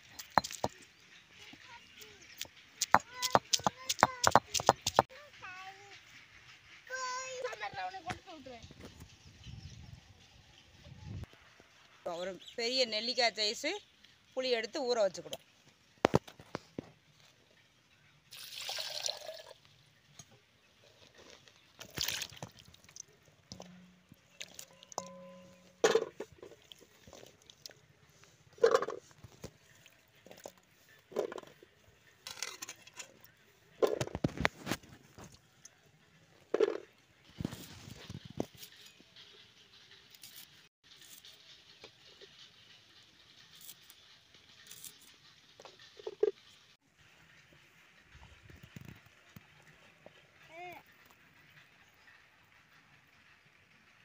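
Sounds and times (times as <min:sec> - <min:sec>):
water poured into a pot: 0:18.3 - 0:19.7, 0:21.8 - 0:23.0.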